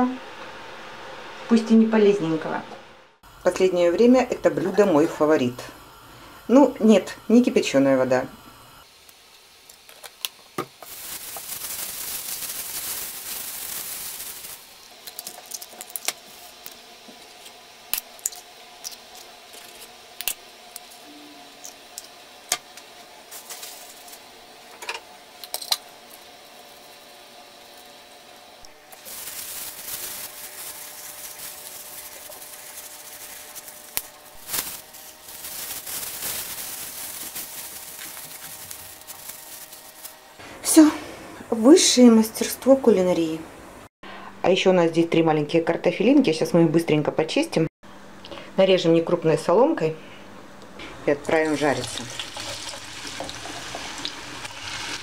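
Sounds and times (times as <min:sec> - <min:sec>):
faint steady hum: 0:00.0 - 0:46.2
plastic bag crinkling: 0:10.8 - 0:16.6, 0:28.8 - 0:40.4.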